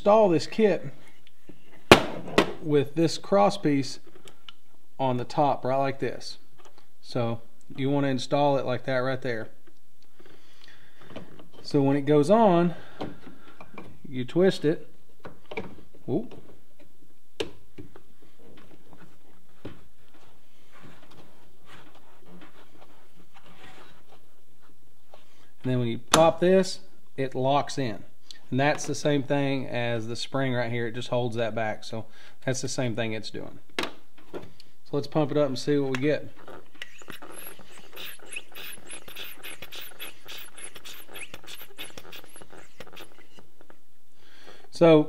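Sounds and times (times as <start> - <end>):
hand pump strokes: 36.5 - 43.4.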